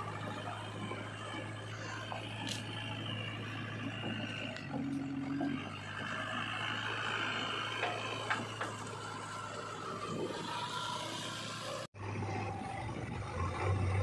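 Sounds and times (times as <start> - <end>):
tyres on gravel: 0.0 - 11.9
diesel engine running: 0.0 - 14.0.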